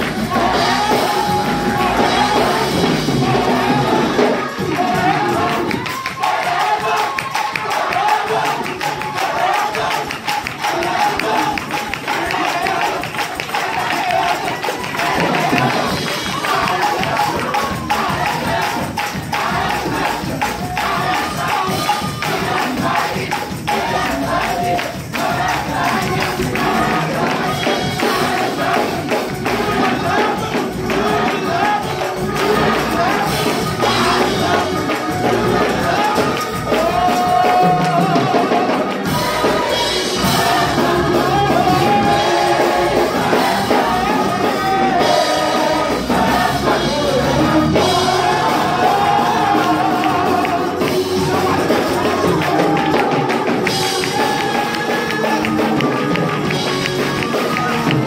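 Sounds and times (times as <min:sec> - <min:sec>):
drum kit with cymbals: 0:00.0 - 0:07.7, 0:08.6 - 0:58.0
gospel choir singing: 0:00.0 - 0:58.0
sharp percussion hits: 0:00.0 - 0:58.0.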